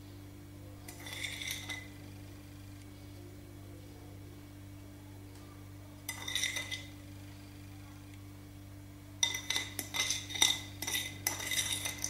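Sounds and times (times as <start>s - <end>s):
fork clinking on ceramic plate: 6.1s - 6.9s, 9.2s - 12.0s.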